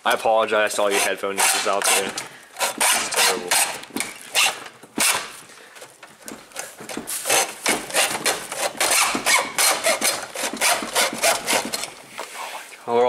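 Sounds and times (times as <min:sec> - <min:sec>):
hacksaw rasping through metal: 0:00.8 - 0:05.3, 0:06.9 - 0:12.0.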